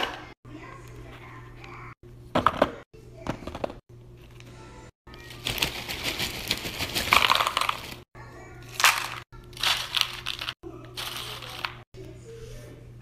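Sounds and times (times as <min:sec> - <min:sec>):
chip bag crinkling: 0:05.2 - 0:08.0, 0:08.7 - 0:11.8
chips crackling and rattling: 0:05.2 - 0:08.1, 0:08.7 - 0:11.8.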